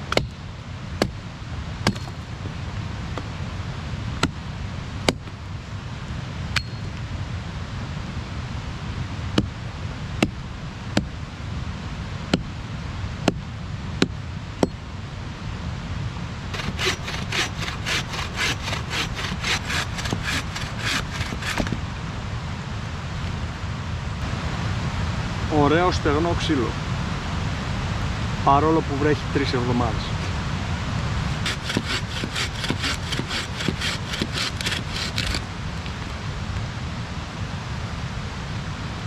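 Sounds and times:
hand saw cutting wood: 16.5 - 21.8, 31.3 - 35.5.

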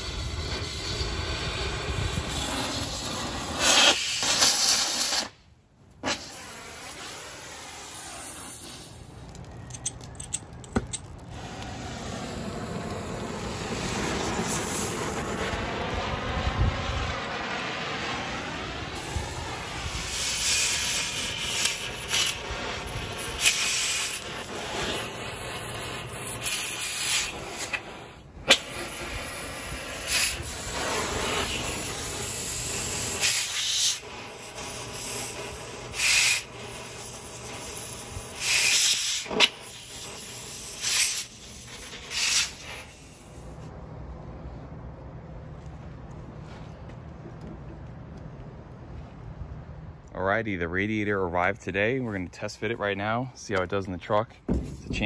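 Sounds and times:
torch flame hissing: 0.0 - 5.4, 6.0 - 10.2, 11.0 - 43.7.

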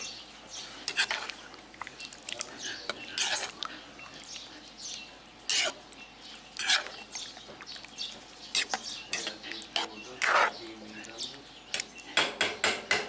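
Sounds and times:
metal spoon stirring stew in a wok: 0.8 - 1.4, 2.9 - 3.6, 5.4 - 7.2, 8.0 - 10.6.

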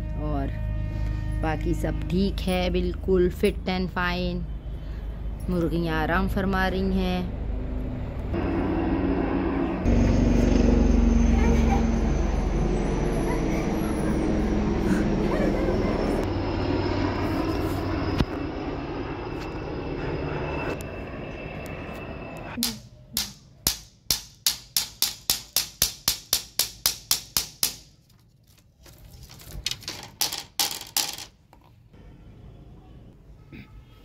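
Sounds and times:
steady background drone: 7.2 - 23.4.

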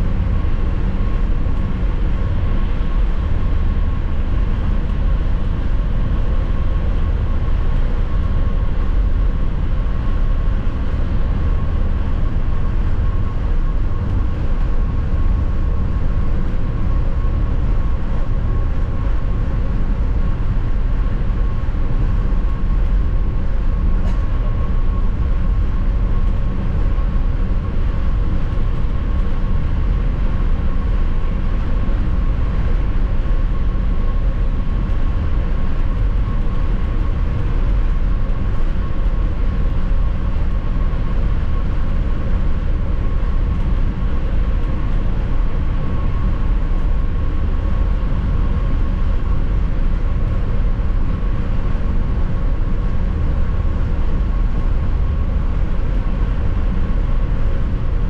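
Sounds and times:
train low rumble: 0.0 - 58.0.

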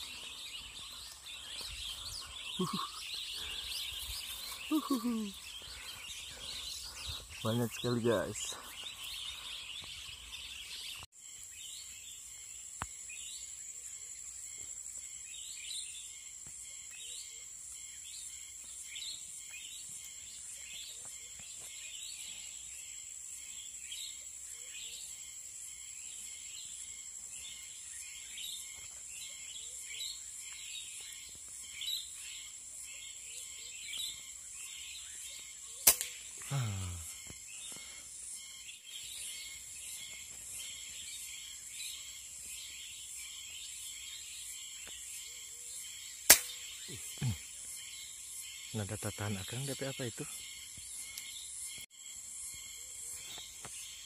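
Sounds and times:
high bird chirps: 0.0 - 11.1
high-pitched insect drone: 0.0 - 54.0.

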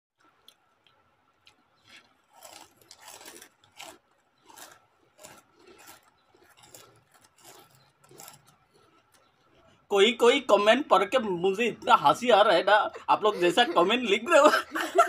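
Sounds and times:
people crunching crispy chips: 0.2 - 12.2.

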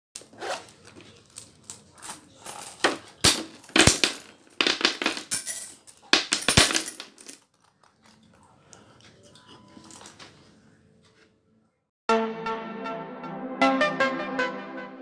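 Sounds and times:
coins clattering on a table: 1.0 - 7.6.

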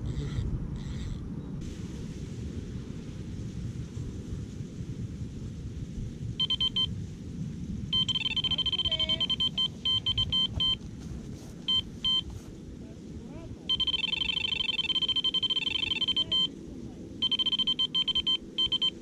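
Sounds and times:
wind rumble on microphone: 0.0 - 19.0
bite alarm beeping: 6.4 - 6.9, 8.0 - 10.8, 11.7 - 12.3, 13.7 - 16.5, 17.2 - 19.0.

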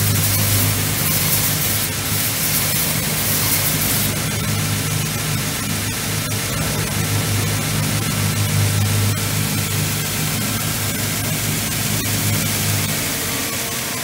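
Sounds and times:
belt grinding hiss: 0.0 - 4.2.

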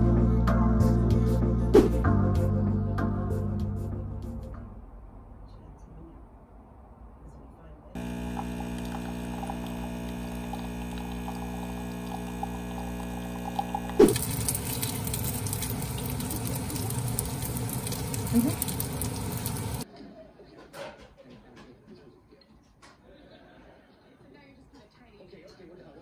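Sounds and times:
coffee machine pump humming: 8.0 - 19.8
coffee streaming into a mug: 8.0 - 19.8
dumplings sizzling in oil: 8.0 - 19.8.

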